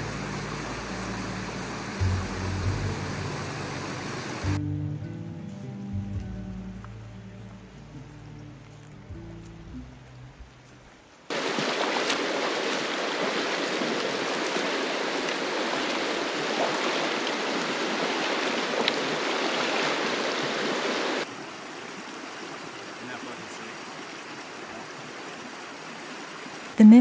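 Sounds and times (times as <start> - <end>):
creek flowing over stones: 0.0 - 4.6, 11.3 - 27.0
music: 0.0 - 11.0.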